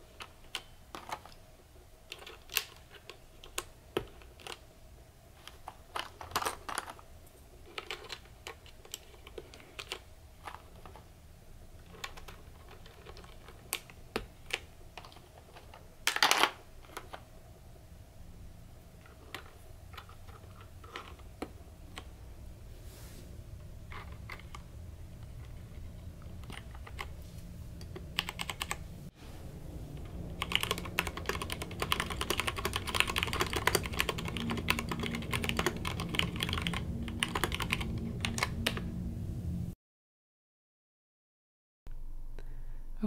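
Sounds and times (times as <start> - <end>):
plastic keycaps clicking: 30.4 - 38.6.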